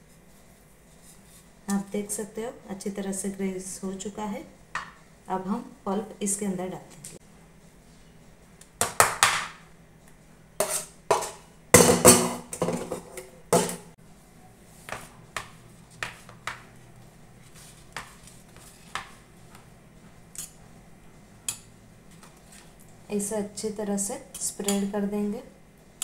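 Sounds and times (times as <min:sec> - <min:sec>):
spatula scraping metal pot: 0:10.6 - 0:11.4.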